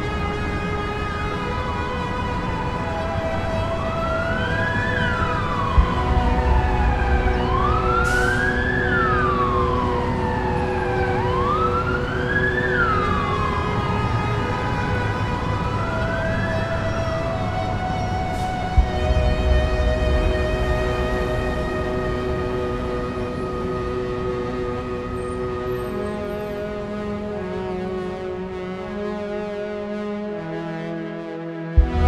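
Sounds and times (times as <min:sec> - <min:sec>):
emergency siren wailing: 0:00.0 - 0:32.0
low steady rumble: 0:05.6 - 0:11.8, 0:18.8 - 0:24.9, 0:31.8 - 0:32.0.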